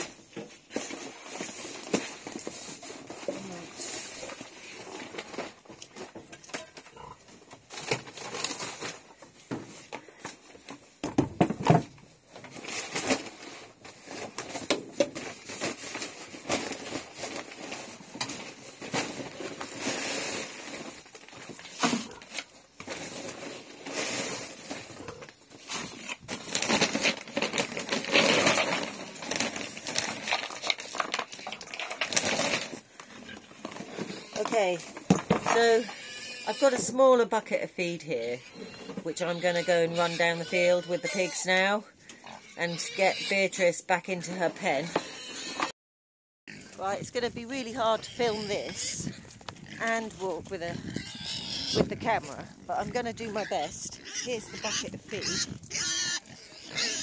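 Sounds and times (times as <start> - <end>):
paper sacks crinkling: 12.5 - 34.6.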